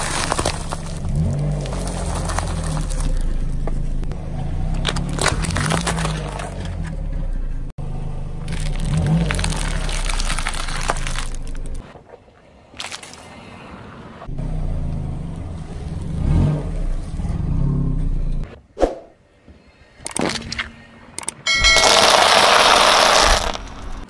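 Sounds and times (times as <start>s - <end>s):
tyre crunching snack wrappers: 0.0s - 3.4s, 4.8s - 6.5s, 8.4s - 11.8s, 21.6s - 24.0s
car engine running low: 0.0s - 11.8s.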